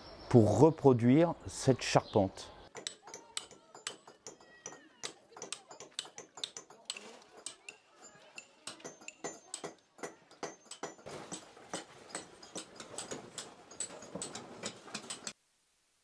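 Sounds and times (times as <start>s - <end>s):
hammers and chisels striking stone: 2.7s - 15.4s.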